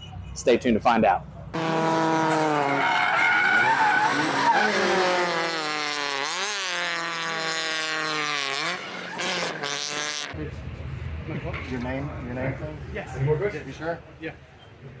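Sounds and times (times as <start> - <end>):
car engine revving high: 1.6 - 10.4
tyres skidding: 1.6 - 10.4.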